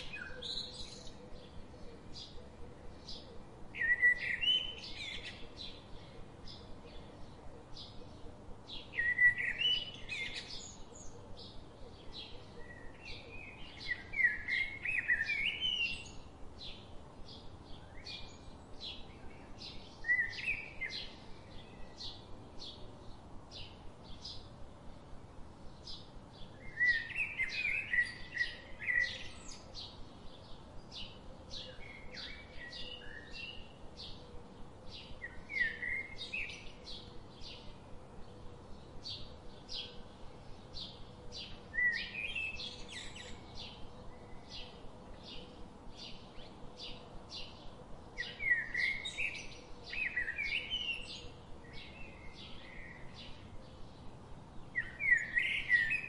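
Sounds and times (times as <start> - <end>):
bird warbling song: 0.0 - 24.6, 25.7 - 56.0
birds chirping: 0.0 - 56.0.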